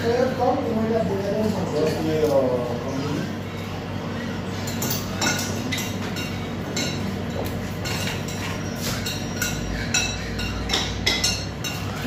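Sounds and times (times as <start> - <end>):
hum of a crowded eating room: 0.0 - 12.0
plates and cutlery clinking: 4.5 - 12.0.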